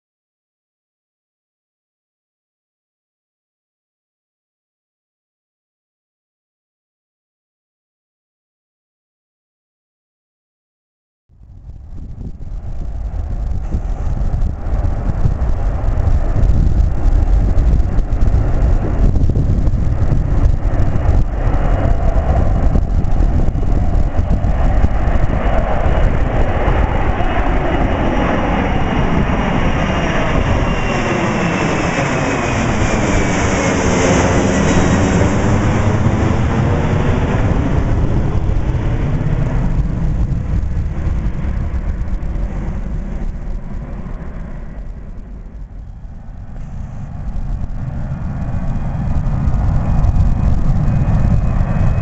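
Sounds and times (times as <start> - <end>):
jet engines rumbling overhead: 11.3 - 52.0
high whine sliding down: 11.4 - 52.0.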